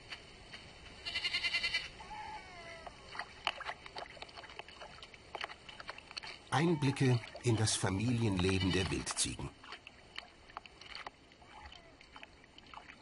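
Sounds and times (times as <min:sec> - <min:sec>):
young goat bleating: 0:01.0 - 0:02.8, 0:08.2 - 0:09.2.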